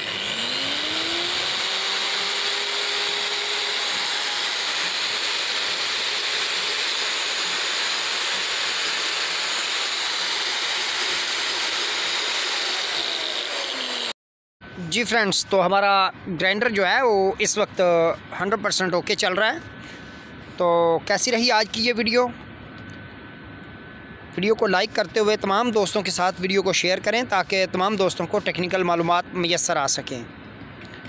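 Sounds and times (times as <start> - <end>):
angle grinder whining: 0.0 - 14.2.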